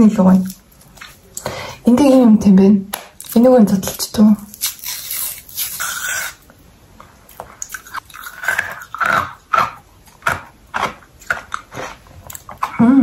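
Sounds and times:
biting and chewing ice cream: 0:07.3 - 0:13.0.

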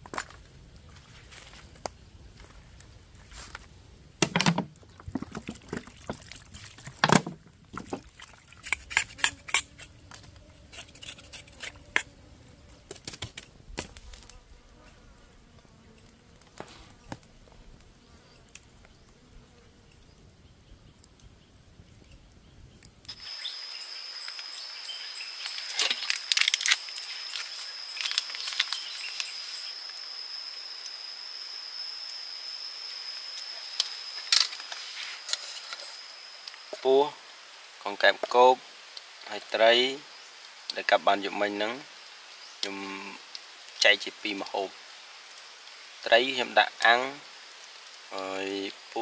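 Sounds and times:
sharp knocks and clicks: 0:04.2 - 0:05.6
crackling clicks: 0:12.8 - 0:14.4, 0:25.4 - 0:30.0
high-pitched insect drone: 0:23.1 - 0:37.2.

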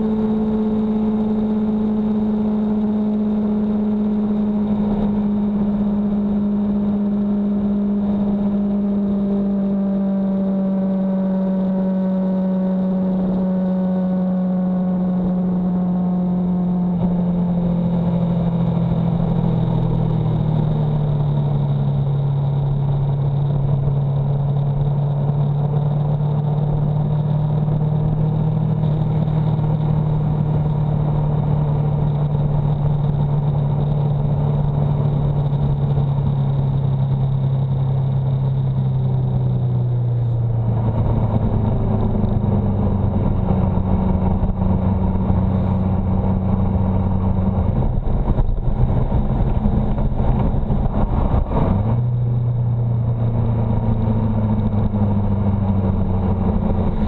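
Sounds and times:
motorcycle engine slowing: 0:00.0 - 0:57.0
road noise: 0:00.0 - 0:57.0
rushing wind: 0:13.0 - 0:57.0.

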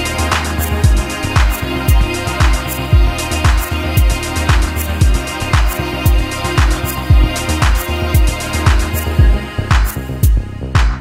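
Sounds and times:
electronic music with steady beat: 0:00.0 - 0:11.0
kick drum thumps: 0:00.8 - 0:11.0.

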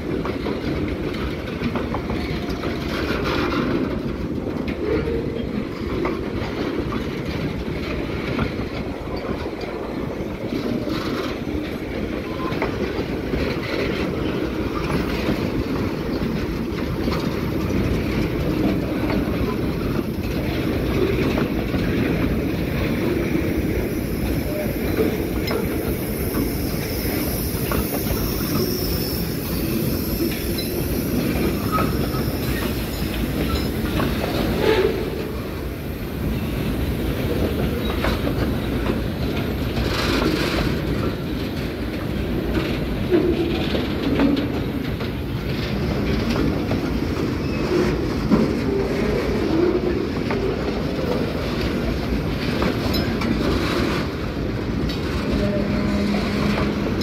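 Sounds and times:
train wheels rumbling on rails: 0:00.0 - 0:57.0
wheels clicking over rail joints: 0:00.0 - 0:57.0
wheel squeals: 0:23.8 - 0:35.5, 0:47.3 - 0:50.5.

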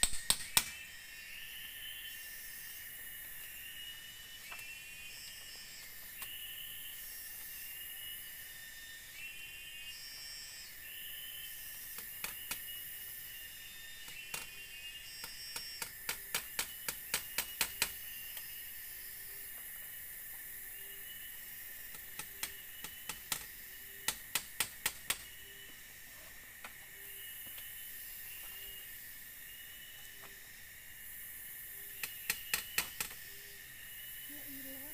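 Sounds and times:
forest insects buzzing: 0:00.0 - 0:34.9
wooden knocks on bamboo slats: 0:22.0 - 0:25.3.

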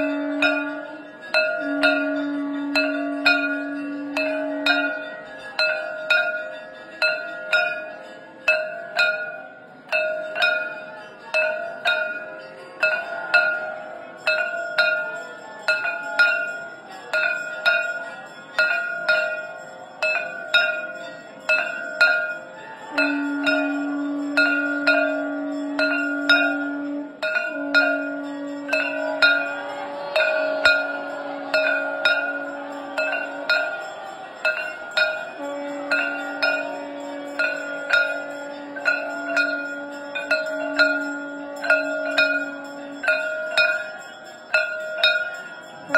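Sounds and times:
conch shell blown: 0:00.0 - 0:05.3, 0:21.6 - 0:45.9
temple bell ringing: 0:00.0 - 0:45.9.

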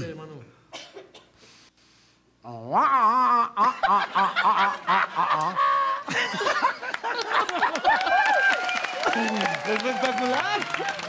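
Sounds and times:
man imitating a tuba with voice: 0:02.4 - 0:03.9
laughter: 0:03.6 - 0:08.4.

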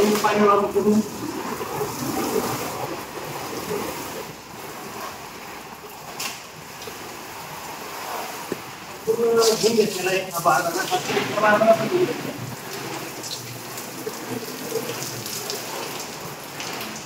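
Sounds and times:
hose water spraying on tarpaulin: 0:00.0 - 0:17.0.

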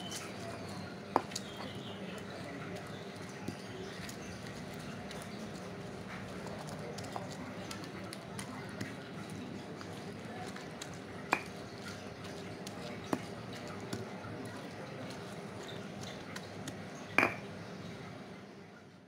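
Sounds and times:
stone pestle grinding in mortar: 0:10.5 - 0:12.2
stone-on-stone knocks: 0:17.2 - 0:17.4.

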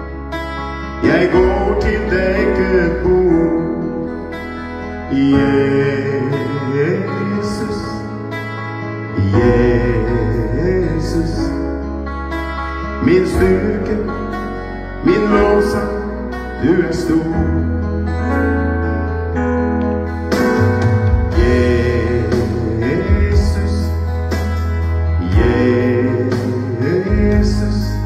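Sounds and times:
electronic keyboard chords: 0:00.0 - 0:28.0
man singing worship song: 0:01.0 - 0:04.2, 0:04.9 - 0:08.4, 0:09.1 - 0:11.9, 0:12.9 - 0:17.9, 0:21.3 - 0:28.0.

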